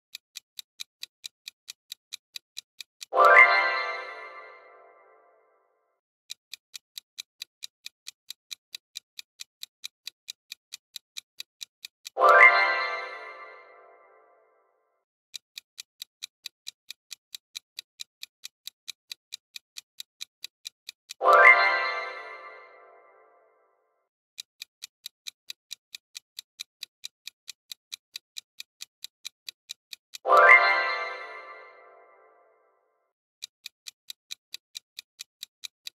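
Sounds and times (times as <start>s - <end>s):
clock ticking: 0.0s - 5.3s, 6.2s - 14.3s, 15.3s - 23.3s, 24.3s - 32.3s, 33.4s - 35.9s
musical sound effect: 3.2s - 5.3s, 21.2s - 23.4s, 30.3s - 32.5s.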